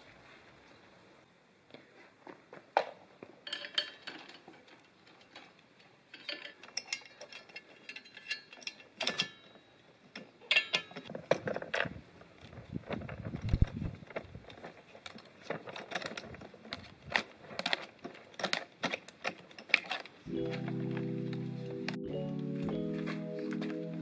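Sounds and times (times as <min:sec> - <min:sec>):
metal parts clicking and clinking: 0:03.4 - 0:11.9, 0:14.4 - 0:20.3.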